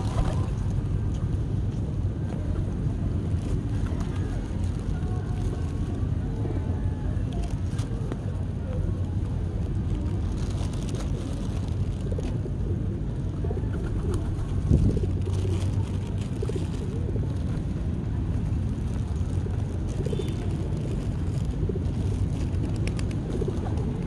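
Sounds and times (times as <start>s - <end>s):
pigeons cooing: 10.9s - 17.6s, 19.3s - 24.0s.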